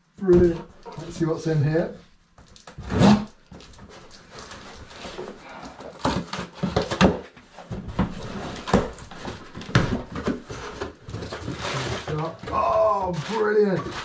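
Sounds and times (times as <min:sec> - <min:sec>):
packing paper rustling: 0:02.4 - 0:14.0
cardboard scraping and knocking: 0:02.8 - 0:14.0.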